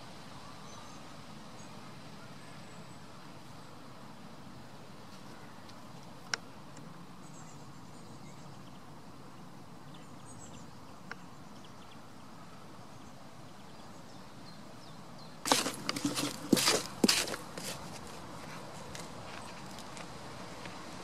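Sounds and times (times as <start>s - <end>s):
outdoor background noise: 0.0s - 21.0s
goat scuffing near microphone: 15.5s - 20.2s.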